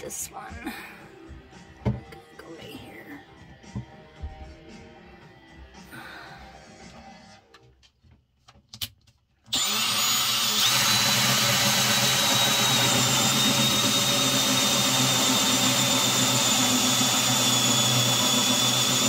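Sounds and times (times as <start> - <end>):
drill with hole saw whining: 9.5 - 19.0.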